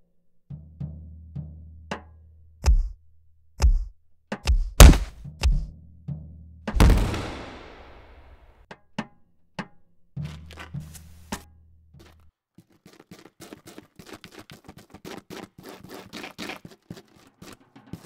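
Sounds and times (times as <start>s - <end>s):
drum roll: 6.8s - 8.4s.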